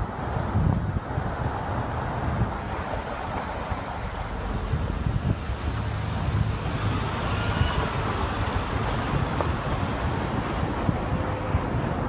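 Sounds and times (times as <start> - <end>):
street traffic: 0.0 - 12.0
wind buffeting microphone: 0.0 - 12.0.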